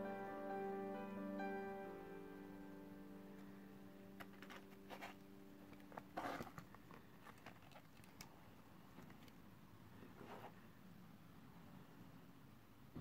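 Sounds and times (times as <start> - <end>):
background music: 0.0 - 6.2
leather strap rustling: 4.2 - 9.4
strap scraping: 5.8 - 8.2.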